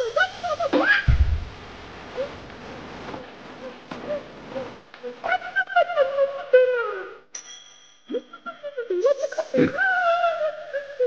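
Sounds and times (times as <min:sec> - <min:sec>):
boxing ring bell: 0:07.3 - 0:08.2.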